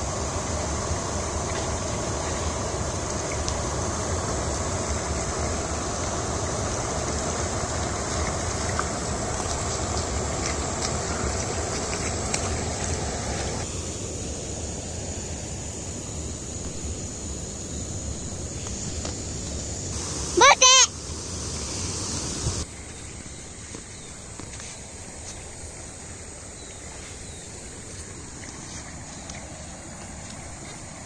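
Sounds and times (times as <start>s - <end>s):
water rushing over weir: 0.0s - 13.7s.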